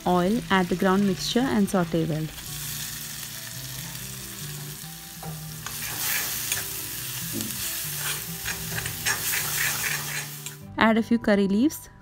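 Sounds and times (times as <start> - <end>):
paste sizzling in oil: 0.4 - 10.6
steel spoon scraping pan: 5.6 - 6.8, 7.8 - 10.6.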